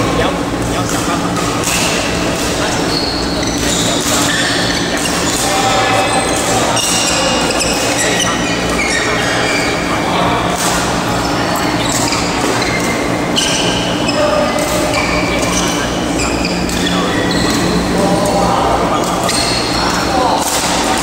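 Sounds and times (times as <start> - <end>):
shoe squeaks on court floor: 2.7 - 9.9, 11.2 - 17.7.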